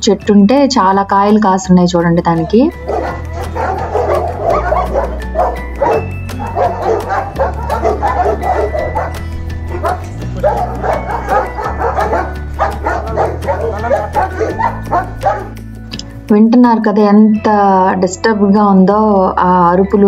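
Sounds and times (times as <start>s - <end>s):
background music with bass line: 0.0s - 20.0s
many dogs barking: 2.3s - 15.8s.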